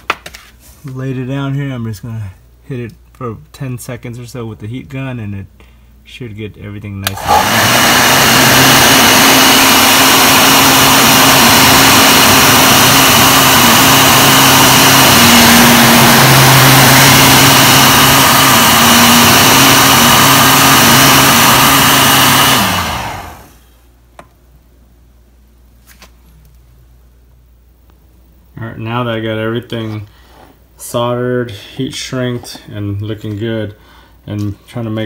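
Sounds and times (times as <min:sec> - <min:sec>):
heat gun blowing: 0:07.0 - 0:23.6.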